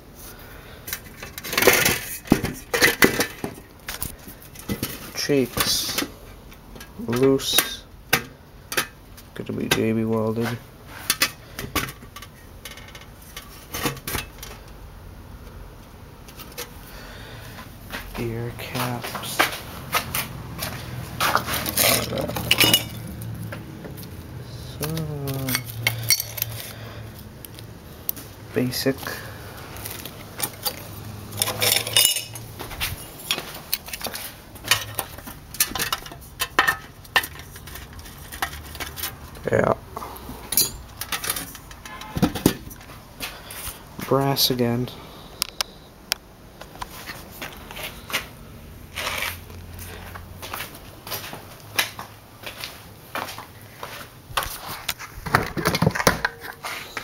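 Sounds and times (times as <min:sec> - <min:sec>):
metal parts clinking and clattering: 0:00.9 - 0:06.0, 0:19.4 - 0:23.2, 0:25.2 - 0:26.7, 0:29.8 - 0:39.2, 0:40.4 - 0:42.6
metal helmet clicks and clinks: 0:25.2 - 0:26.7, 0:30.3 - 0:32.5, 0:40.5 - 0:42.1.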